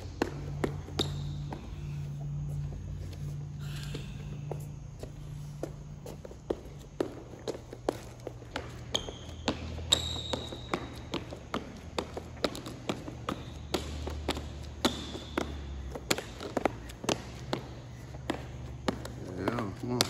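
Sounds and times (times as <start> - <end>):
sneaker taps on court floor: 0.0 - 1.7, 6.5 - 20.0
steady low hum: 0.0 - 20.0
sneaker sole squeaks: 0.5 - 2.1, 7.6 - 11.8.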